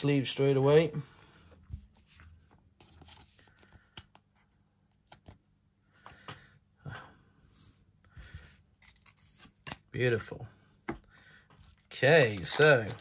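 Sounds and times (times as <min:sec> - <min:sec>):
card sliding into plastic sleeve: 0:12.2 - 0:13.0.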